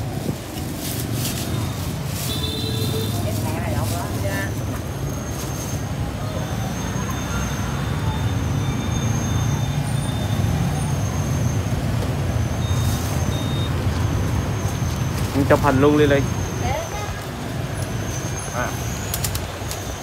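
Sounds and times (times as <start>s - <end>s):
busy street traffic rumble: 0.0s - 20.0s.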